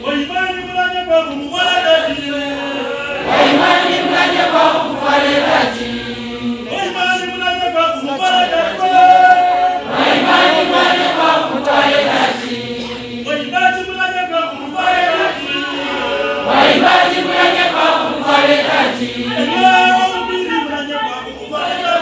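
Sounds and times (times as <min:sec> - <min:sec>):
choir singing: 0:02.1 - 0:22.0.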